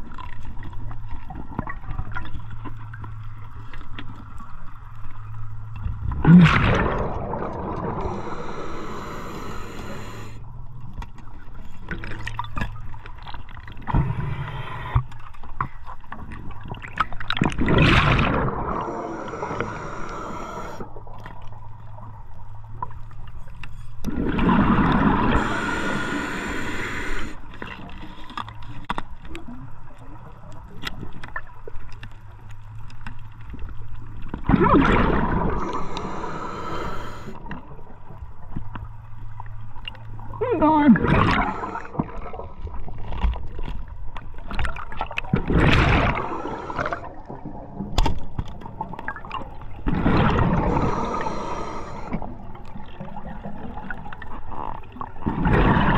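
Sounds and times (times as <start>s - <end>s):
low water rumble: 0.0s - 55.9s
exhaled bubbles bursts: 6.0s - 10.4s, 16.7s - 21.0s, 24.1s - 27.4s, 34.4s - 37.5s, 40.3s - 42.7s, 44.7s - 48.0s, 48.7s - 54.2s, 55.2s - 55.9s.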